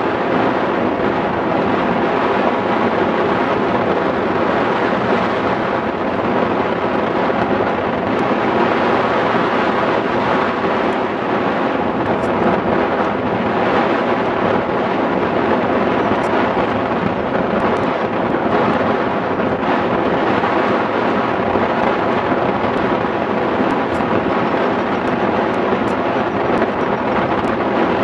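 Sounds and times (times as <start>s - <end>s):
wind roar over microphone: 0.0s - 28.0s.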